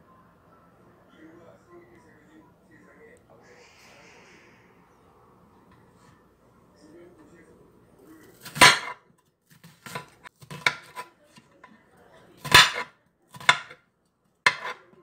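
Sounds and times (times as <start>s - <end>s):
knife slicing onion: 8.3s - 11.1s, 12.4s - 13.8s, 14.4s - 15.0s.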